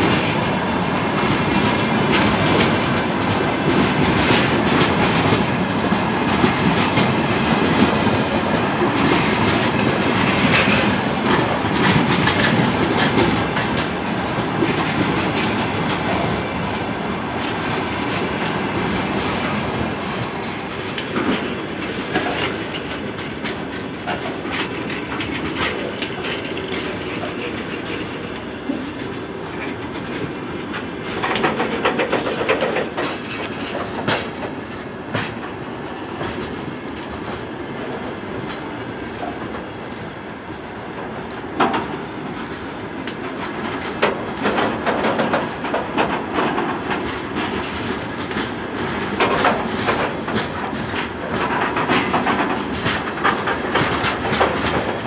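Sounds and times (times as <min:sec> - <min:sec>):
train wheels rolling on rails: 0:00.0 - 0:55.0
wheels knocking over rail joints: 0:43.1 - 0:55.0.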